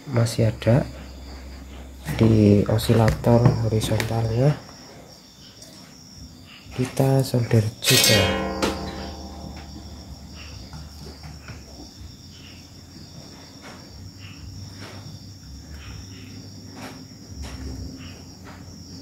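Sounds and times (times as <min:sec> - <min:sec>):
high-pitched insect trill: 0:00.0 - 0:19.0
low hum: 0:08.0 - 0:11.1.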